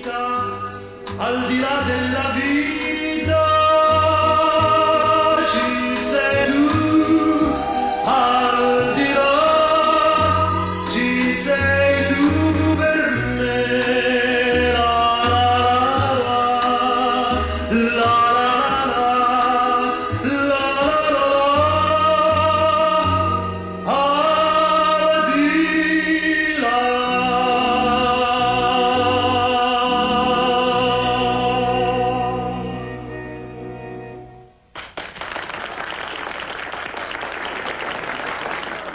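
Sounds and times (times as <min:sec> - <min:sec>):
man singing a ballad: 0:00.0 - 0:33.4
violins: 0:00.0 - 0:34.6.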